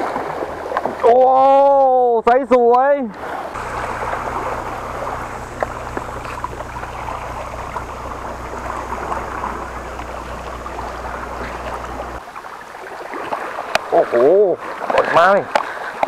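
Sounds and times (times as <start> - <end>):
steady low rumble: 3.6 - 12.2
water lapping against rocks: 11.4 - 16.0.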